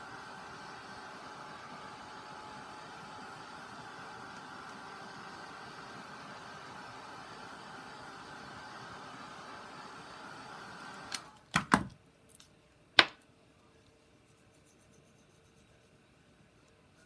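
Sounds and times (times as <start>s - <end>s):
electric fan whirring: 0.0s - 11.8s.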